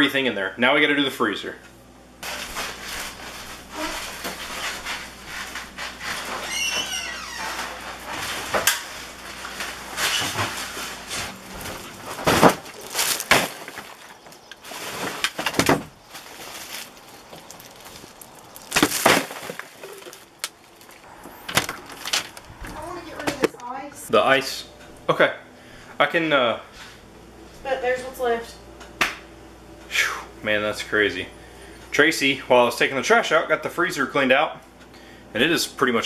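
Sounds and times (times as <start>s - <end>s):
plastic trash bags rustling: 2.2s - 23.8s
wavering squeak: 6.3s - 7.6s.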